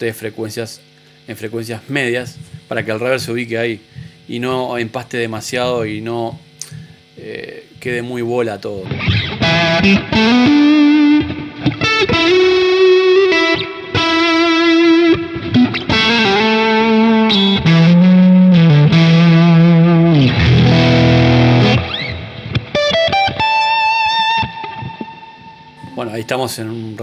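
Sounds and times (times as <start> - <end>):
electric guitar lead notes with reverb: 8.8 - 26.6.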